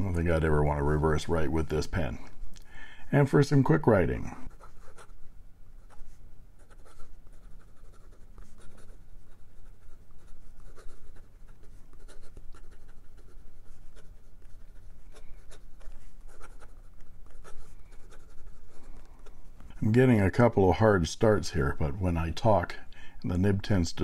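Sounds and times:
pen nib scratching on paper: 5.8s - 19.4s.

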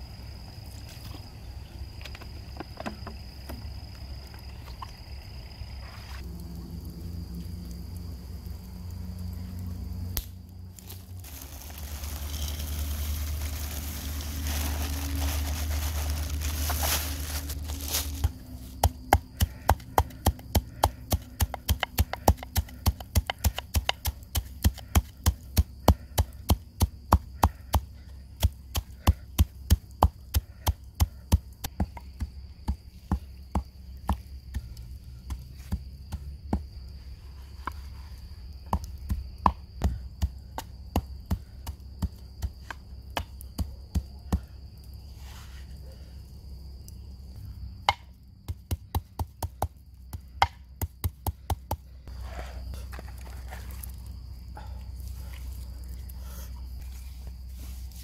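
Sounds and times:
salt poured from plastic bag: 10.8s - 18.2s.

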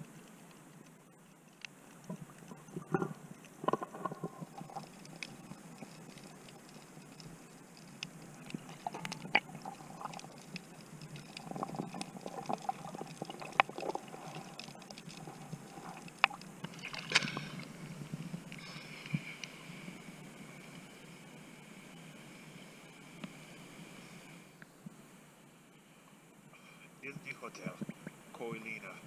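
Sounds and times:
clicks and taps underwater: 1.6s - 7.2s, 8.0s - 17.7s
underwater wash of water: 3.6s - 20.2s
water splash: 16.2s - 17.7s.

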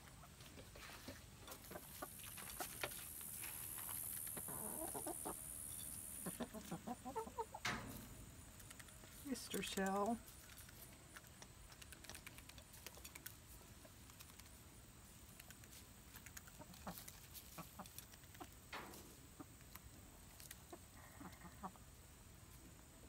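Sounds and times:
chickens clucking: 0.0s - 22.7s
beaks pecking at feed: 8.4s - 21.8s.

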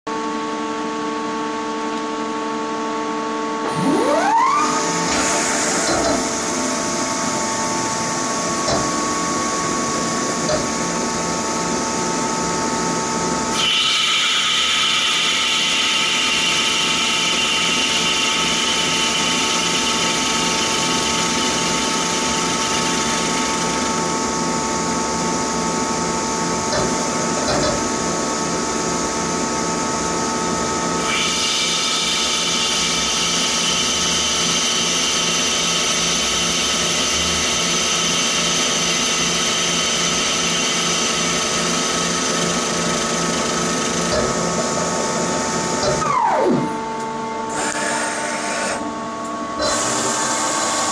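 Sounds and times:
high-pitched whine: 2.5s - 26.6s, 30.5s - 48.5s
lathe machine hum: 3.4s - 27.3s, 30.6s - 46.1s
boring bar cutting metal: 47.5s - 48.8s.

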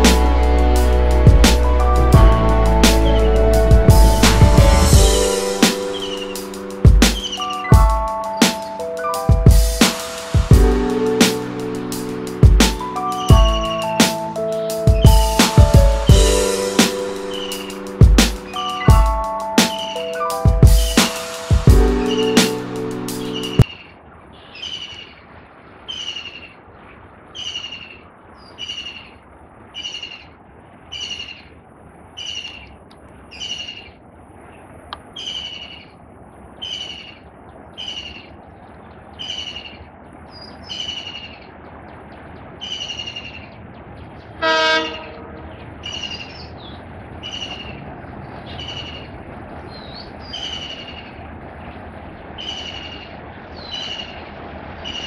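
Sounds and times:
locomotive horn blast: 0.0s - 6.8s, 44.4s - 45.5s
locomotive rumble: 0.0s - 8.8s, 41.5s - 55.0s
bird repeating high falling call: 4.8s - 10.4s, 12.8s - 23.8s.

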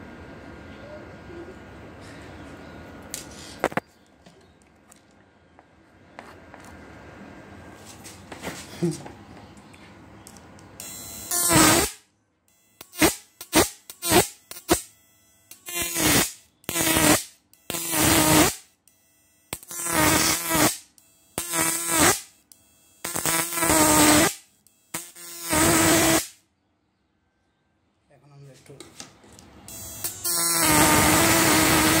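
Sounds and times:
electric arc buzzing: 10.8s - 26.4s, 29.7s - 32.0s.

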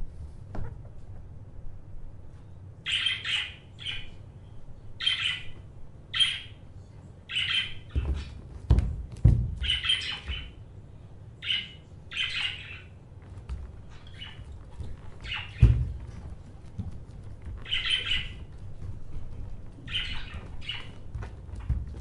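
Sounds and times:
low thumps: 7.8s - 10.6s, 13.3s - 22.0s.

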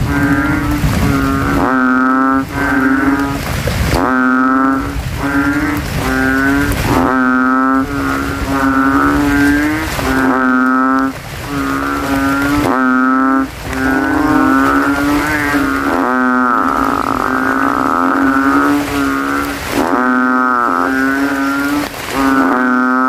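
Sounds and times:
frogs calling deeply: 0.0s - 23.0s.

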